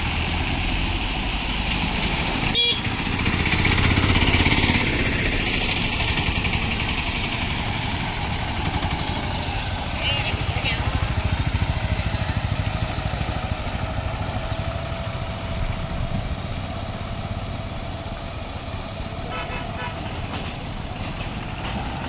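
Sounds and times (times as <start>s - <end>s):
low rumble of traffic: 0.0s - 22.0s
motorcycle engine chugging: 2.5s - 18.2s.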